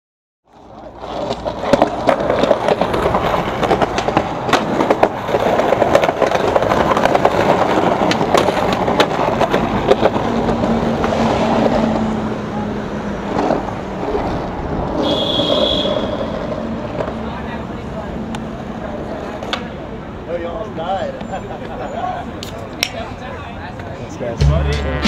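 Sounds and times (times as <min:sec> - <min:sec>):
wheels clicking over pavement seams: 0:00.5 - 0:12.2
skateboard wheels rolling on concrete: 0:00.5 - 0:24.4.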